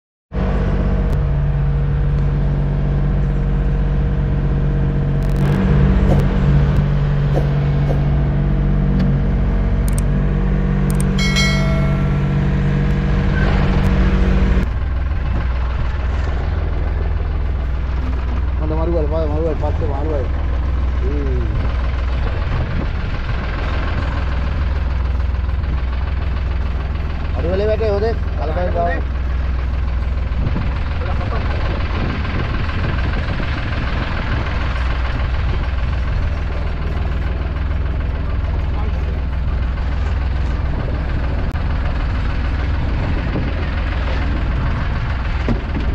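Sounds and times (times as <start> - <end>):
boat engine droning: 0.3 - 45.9
high ringing tone: 10.9 - 13.6
wind and sea noise: 40.0 - 45.9.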